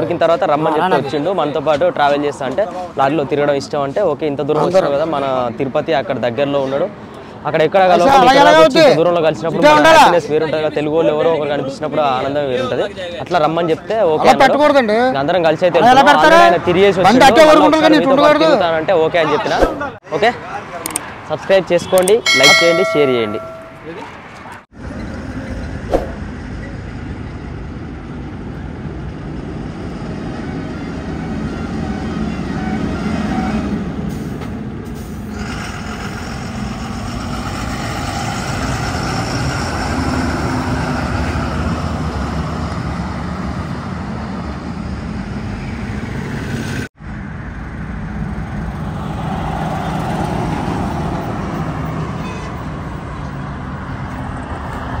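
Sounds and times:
heavy trucks driving past: 22.4s - 55.0s.

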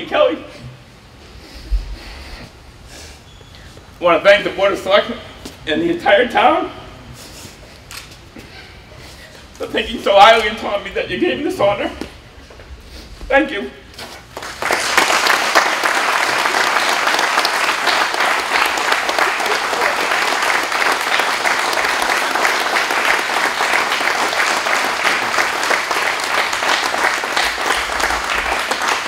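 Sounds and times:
crowd applauding: 14.3s - 29.0s.

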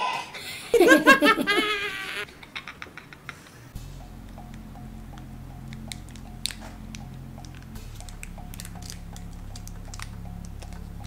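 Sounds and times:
foil wrapper crinkling: 7.5s - 10.8s.

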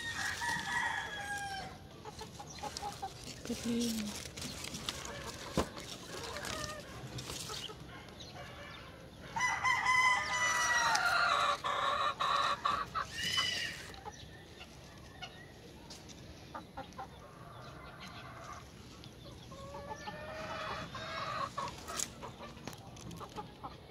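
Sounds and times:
rooster crowing: 0.0s - 1.8s, 8.4s - 13.8s.

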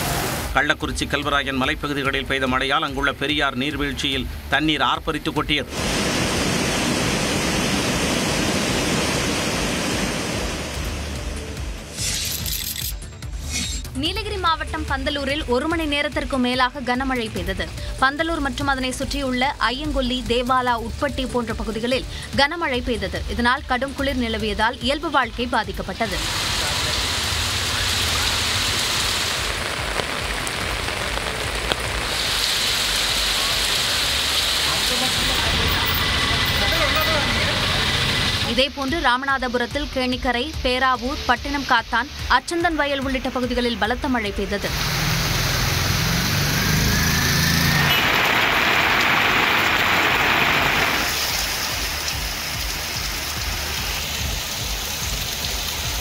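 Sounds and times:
traffic on a wet road: 0.0s - 12.0s, 25.9s - 39.1s, 44.6s - 56.0s
heavy rain hiss: 0.0s - 12.4s, 16.7s - 56.0s
raindrop ticks: 29.4s - 32.6s, 49.6s - 56.0s.

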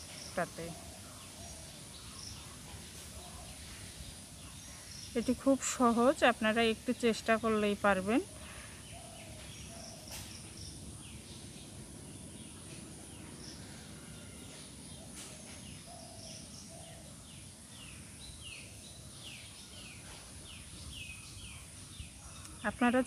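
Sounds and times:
faint birdsong chirps: 0.0s - 23.0s.

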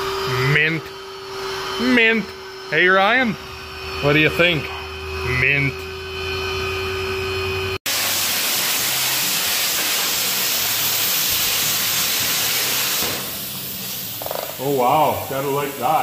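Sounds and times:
steady low hum: 0.0s - 7.8s
plasma cutter hissing: 7.9s - 16.0s.

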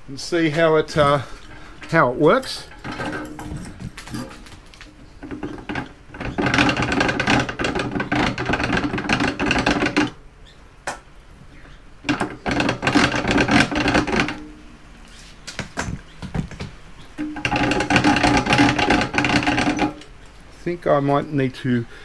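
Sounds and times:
wire stripper clicking and rattling: 0.6s - 10.2s, 12.0s - 14.7s, 15.5s - 20.5s.

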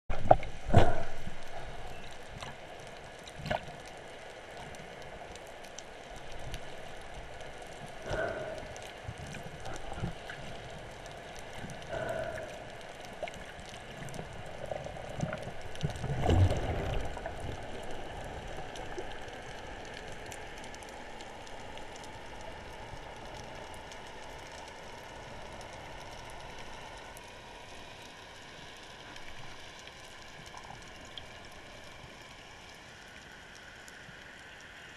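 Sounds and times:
steady underwater hiss: 0.1s - 34.9s
bubbling gurgles: 11.4s - 19.8s.

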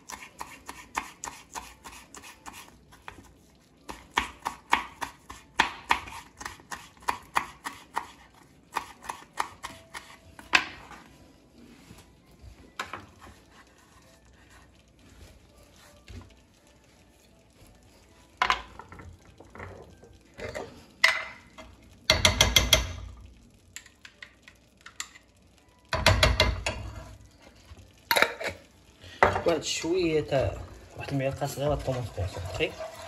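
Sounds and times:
metal spoon scraping frying pan: 31.7s - 33.0s.

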